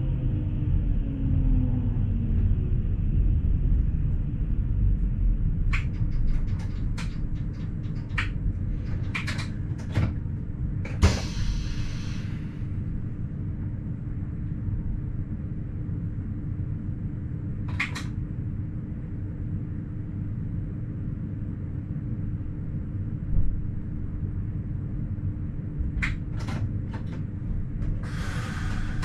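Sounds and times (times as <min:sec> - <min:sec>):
electric railcar rumble: 0:00.0 - 0:29.0
short hiss: 0:11.1 - 0:12.4.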